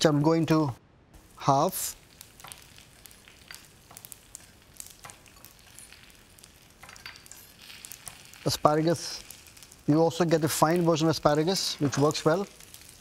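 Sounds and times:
oil sizzling in a pan: 1.2s - 13.0s.

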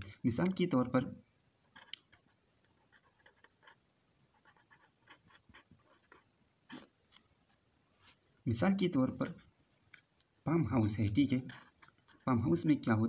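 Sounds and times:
pen scratching on paper: 1.6s - 6.9s, 11.3s - 12.7s.

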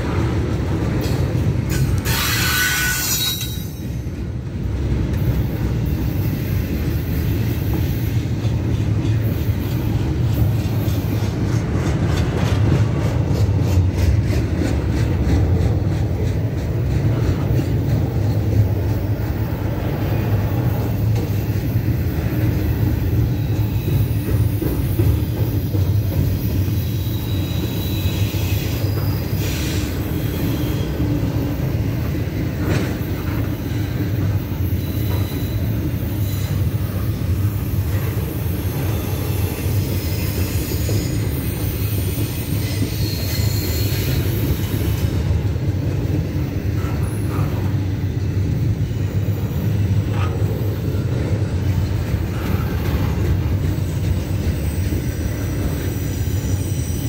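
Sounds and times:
train wheels rumbling on rail: 0.0s - 57.0s
wheels clicking over rail joints: 0.1s - 6.1s, 7.6s - 19.5s
high wheel squeal: 1.7s - 4.1s, 26.3s - 31.3s, 33.6s - 45.1s, 51.8s - 57.0s.

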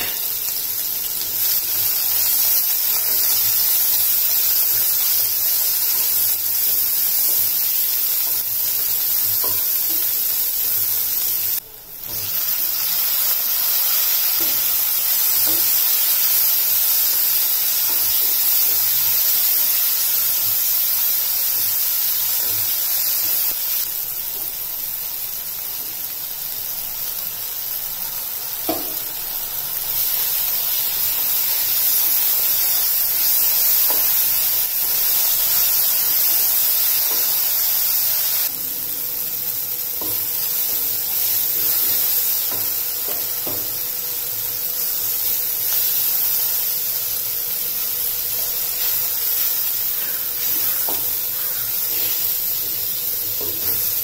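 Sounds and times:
vegetables sizzling in a pan: 0.0s - 54.0s
spatula tapping a pan: 9.3s - 10.1s, 28.7s - 29.1s, 42.5s - 43.8s, 50.0s - 52.1s.

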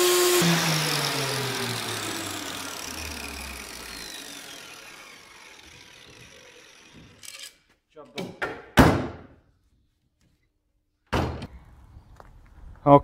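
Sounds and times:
angle grinder winding down: 0.0s - 7.5s.

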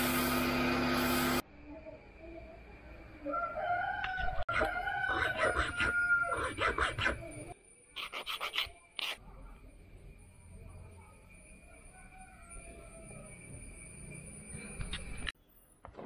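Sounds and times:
rooster crowing: 3.2s - 7.2s, 11.5s - 13.8s
coping saw rasping: 4.5s - 7.2s
hand file strokes: 4.5s - 7.3s.

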